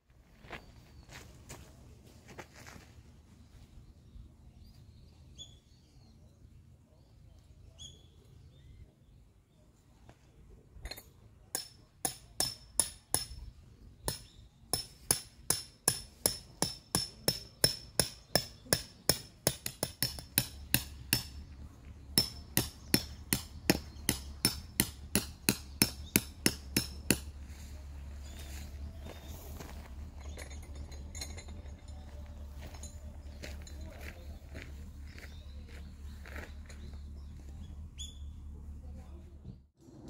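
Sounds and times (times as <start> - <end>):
hammer striking metal tent peg: 10.8 - 21.4, 22.2 - 27.3.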